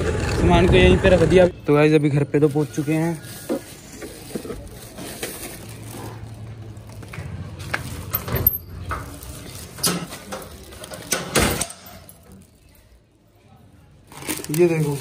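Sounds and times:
plastic bags rustling: 0:02.1 - 0:11.3, 0:14.0 - 0:15.0.

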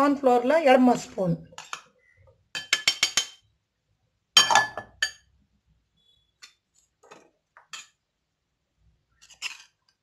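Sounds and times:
metal spoon clinking on bowls: 0:02.5 - 0:03.5, 0:04.4 - 0:05.3.

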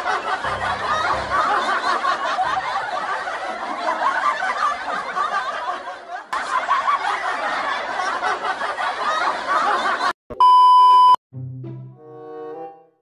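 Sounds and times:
laugh track: 0:00.0 - 0:10.2.

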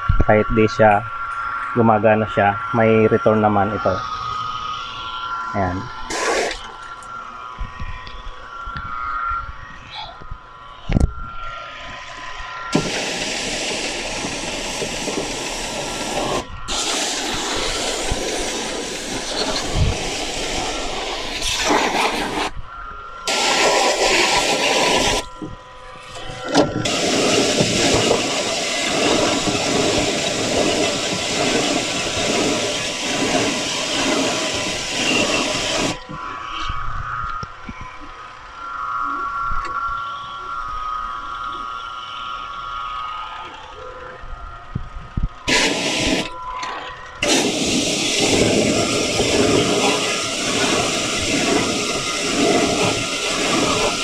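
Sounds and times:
steady whine: 0:00.0 - 0:54.0
pressure washer spraying: 0:06.1 - 0:06.7, 0:12.7 - 0:22.5, 0:23.3 - 0:25.3, 0:26.5 - 0:36.0, 0:45.5 - 0:46.3, 0:47.2 - 0:54.0.

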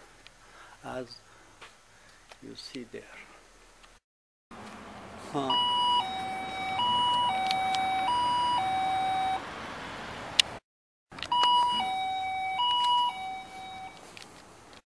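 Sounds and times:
electronic two-tone alarm: 0:05.5 - 0:09.4, 0:11.3 - 0:14.1.

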